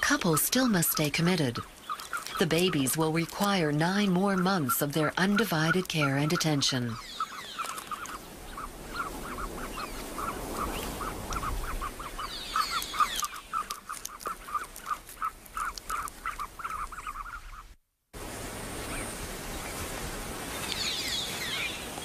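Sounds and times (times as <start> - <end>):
eggshell crackling: 0.0 - 17.4
ostrich chick peeping: 0.0 - 17.8.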